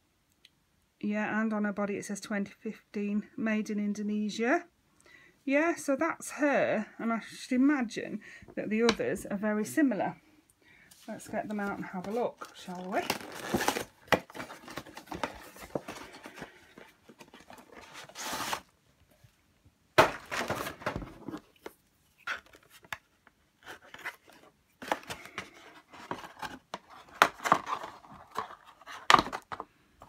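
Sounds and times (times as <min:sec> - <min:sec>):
cardboard and plastic rustling: 0:11.0 - 0:19.3, 0:20.0 - 0:30.0.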